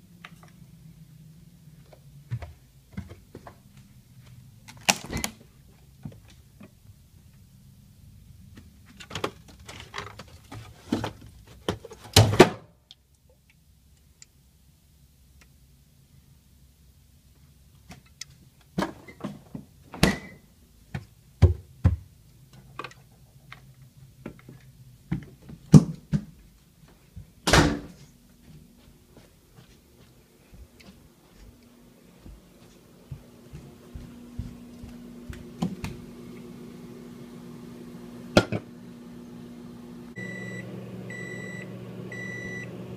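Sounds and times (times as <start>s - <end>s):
things handled at refrigerator: 8.8s - 12.6s
doors shutting: 27.4s - 28.0s.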